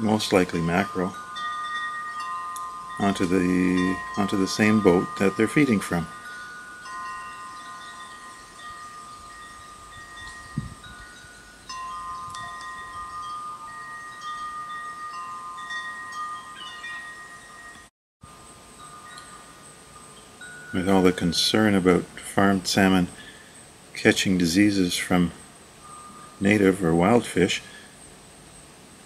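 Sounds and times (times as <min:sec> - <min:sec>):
bell-like chime tones: 0:00.0 - 0:17.9.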